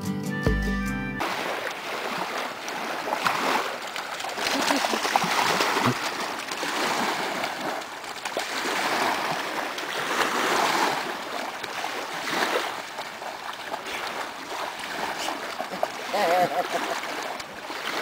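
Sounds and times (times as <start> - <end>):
dogs splashing through water: 1.2 - 18.0
small waves washing over pebbles: 1.2 - 18.0.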